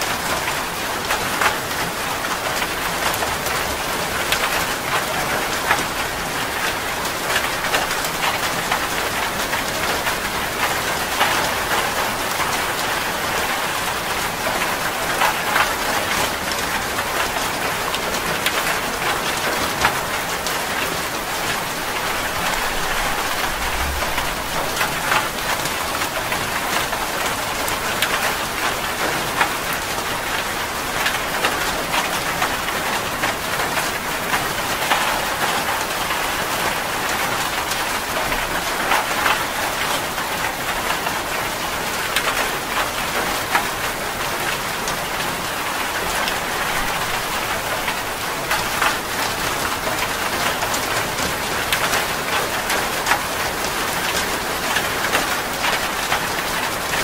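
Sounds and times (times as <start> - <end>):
raindrops splashing: 0.0 - 57.0
steady rain: 0.0 - 57.0.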